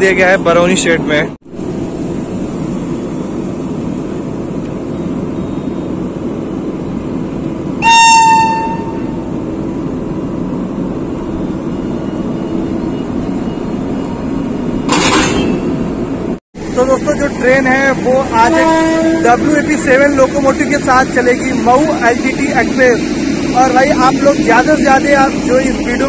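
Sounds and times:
standing train humming: 0:00.0 - 0:26.0
locomotive horn blast: 0:07.8 - 0:09.4, 0:18.3 - 0:19.7.

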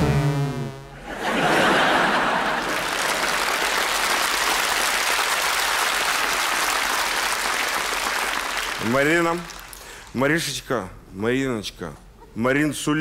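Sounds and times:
audience applauding: 0:01.6 - 0:10.0.

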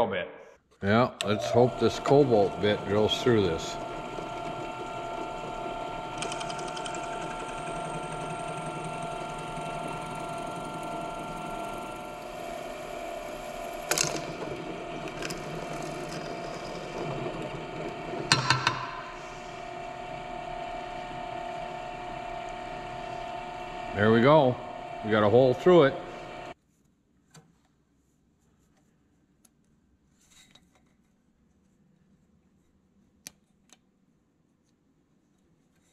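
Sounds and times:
drill press motor whine: 0:01.2 - 0:26.6
sharp clicks and knocks: 0:18.2 - 0:19.0.

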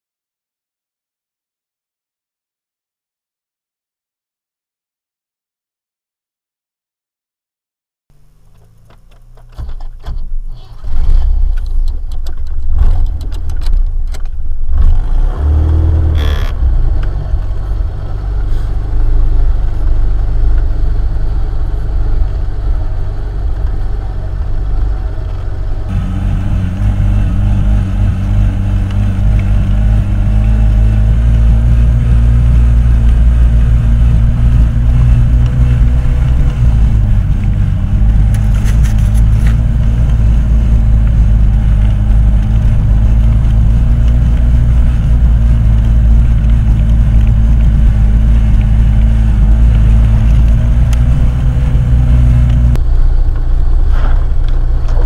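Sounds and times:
off-road vehicle engine running: 0:08.1 - 0:55.0
knocks and rattles: 0:08.4 - 0:15.0.

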